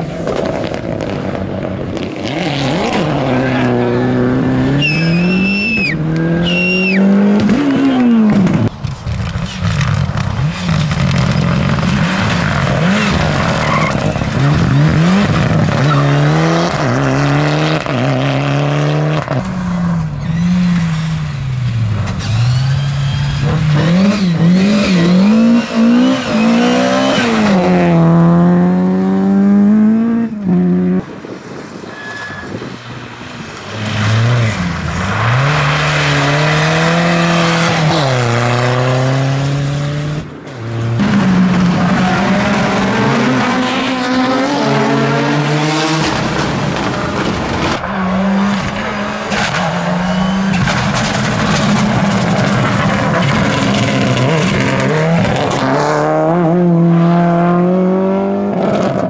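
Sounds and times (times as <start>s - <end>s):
high squeal: 4.7s - 7.1s, 22.2s - 23.6s, 24.2s - 27.4s, 31.8s - 32.8s, 49.6s - 50.8s
car engine revving hard: 10.4s - 19.4s, 22.2s - 31.0s, 33.8s - 40.3s, 40.9s - 59.0s.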